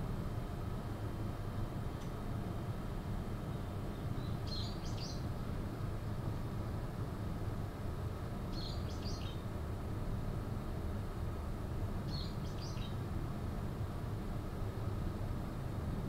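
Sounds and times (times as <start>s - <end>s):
small bird chirping: 3.5s - 5.3s, 8.5s - 9.4s, 12.1s - 13.0s.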